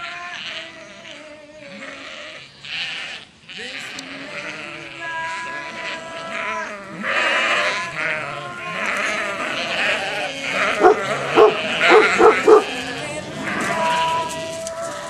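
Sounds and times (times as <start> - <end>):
sheep bleating: 0.0 - 15.0.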